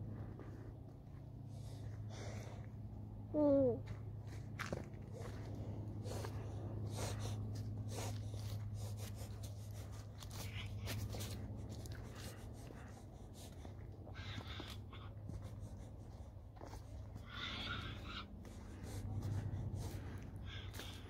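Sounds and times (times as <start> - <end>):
steady low hum: 0.0 - 21.0
footsteps crunching on twigs and leaves: 3.8 - 21.0.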